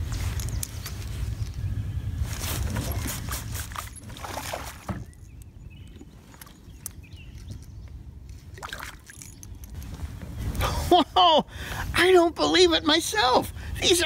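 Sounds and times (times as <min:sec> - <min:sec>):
wind rumbling on microphone: 0:00.0 - 0:14.0
water sloshing by boat: 0:02.6 - 0:07.6, 0:08.4 - 0:09.7.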